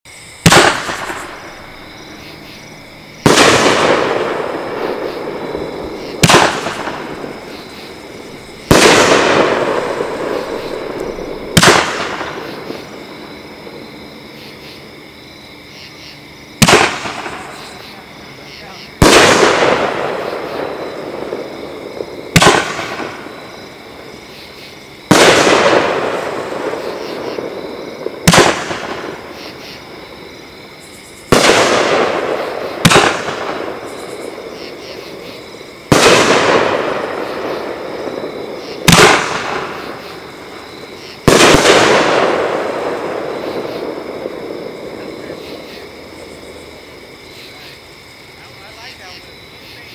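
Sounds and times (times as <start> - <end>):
firework launch cracks: 0.4 - 1.8, 3.2 - 13.0, 16.6 - 17.8, 19.0 - 23.5, 25.1 - 29.3, 31.3 - 34.5, 35.8 - 46.3
firework shell bursting bangs: 0.4 - 1.8, 3.2 - 13.8, 16.6 - 17.8, 19.0 - 23.5, 25.1 - 29.4, 31.3 - 35.2, 35.8 - 46.5.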